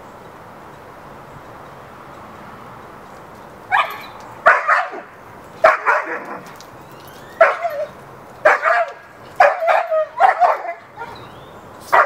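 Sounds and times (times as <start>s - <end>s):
dog barking: 3.7s - 6.4s, 7.4s - 11.2s.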